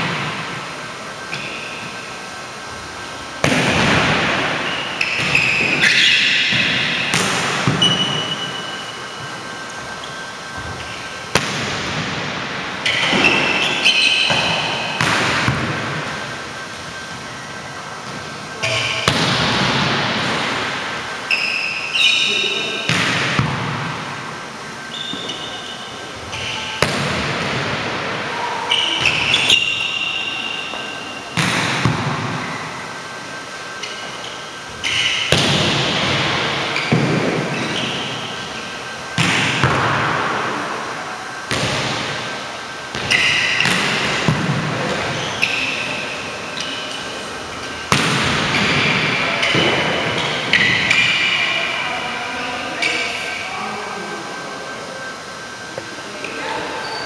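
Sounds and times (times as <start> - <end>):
volleyball smacks echoing in gym: 0.0 - 0.7, 3.4 - 8.7, 10.5 - 17.0, 18.0 - 21.1, 22.0 - 32.7, 34.8 - 38.5, 39.1 - 46.1, 46.8 - 51.6
short high squeaks: 4.6 - 6.5, 12.8 - 14.7, 18.6 - 19.0, 21.2 - 22.8, 24.8 - 26.8, 28.4 - 31.2, 45.2 - 47.2.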